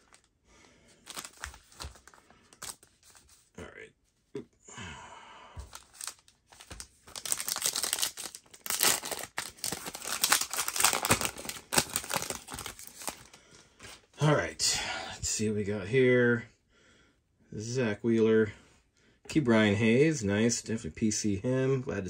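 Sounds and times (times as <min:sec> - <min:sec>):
wrapper being torn open: 0:01.0 - 0:03.3, 0:05.7 - 0:13.3
foil wrapper crinkling: 0:01.0 - 0:03.4, 0:05.7 - 0:13.4.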